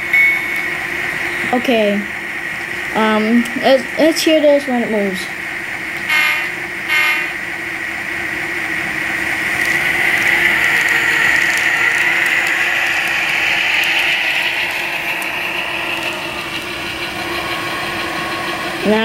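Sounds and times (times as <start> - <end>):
model locomotive diesel engine sound: 0.0 - 19.0
motor and gears whirring: 8.7 - 19.0.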